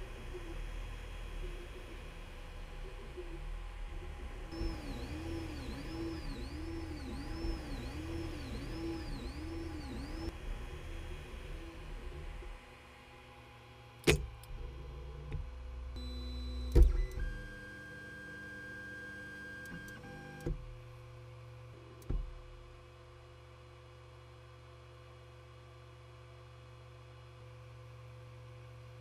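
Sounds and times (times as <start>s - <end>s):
cooling fans humming: 4.4s - 15.8s
stepper motors whining: 4.5s - 10.3s.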